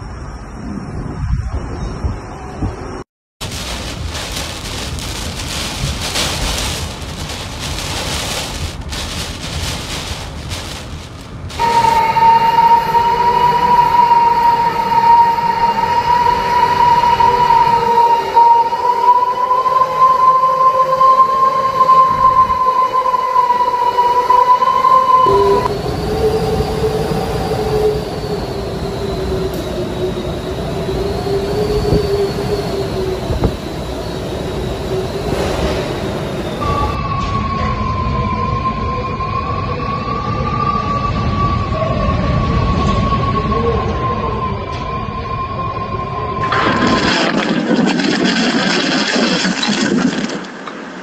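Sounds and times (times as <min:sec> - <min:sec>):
hurricane wind: 0:00.0 - 0:51.0
heavy wind-driven rain: 0:02.8 - 0:12.4, 0:25.3 - 0:37.0
low churning rumble: 0:03.4 - 0:12.0
rushing noise: 0:03.4 - 0:12.7.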